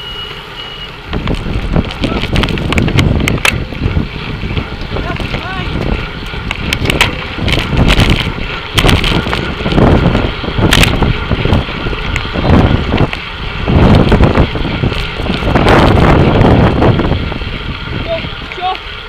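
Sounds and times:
wind buffeting microphone: 1.0 - 19.0.

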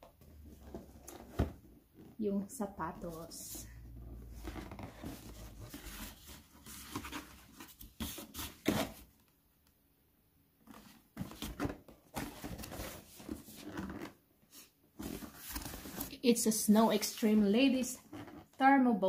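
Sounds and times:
cardboard box scraping and rustling: 4.1 - 9.0.

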